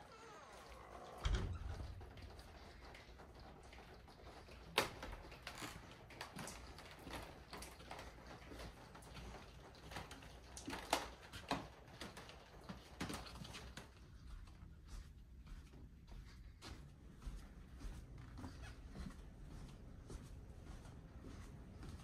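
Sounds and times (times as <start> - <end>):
low room hum: 0.0 - 22.0
footsteps on hard floor: 13.4 - 22.0.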